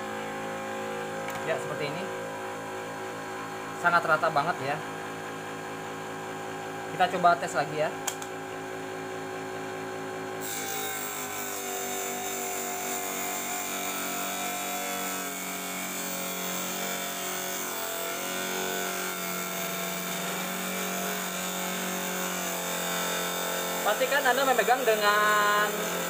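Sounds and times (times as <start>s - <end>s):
table saw motor hum: 0.0s - 7.2s, 8.6s - 26.0s
saw blade rasping through board: 10.4s - 26.0s.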